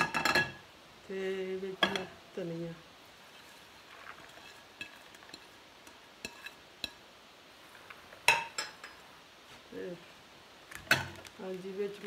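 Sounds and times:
dish clattering: 0:00.0 - 0:00.6, 0:08.2 - 0:09.0
herbs scraped off a plate: 0:03.2 - 0:06.6.

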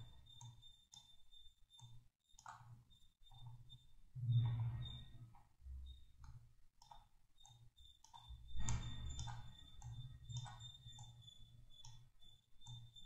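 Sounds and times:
computer mouse clicking: 0:00.3 - 0:01.1, 0:01.7 - 0:03.7, 0:06.2 - 0:13.0.

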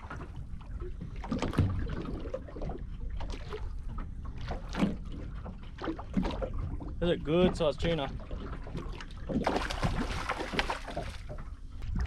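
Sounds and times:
water slapping against boat hull: 0:00.0 - 0:12.0
steady low rumble: 0:11.4 - 0:12.0.

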